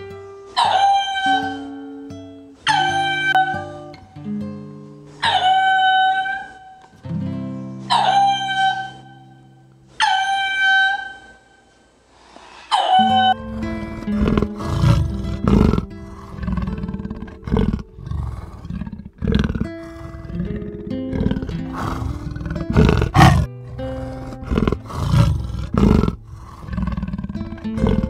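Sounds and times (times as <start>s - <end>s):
background music: 13.1s - 28.0s
big cat roaring: 13.2s - 28.0s.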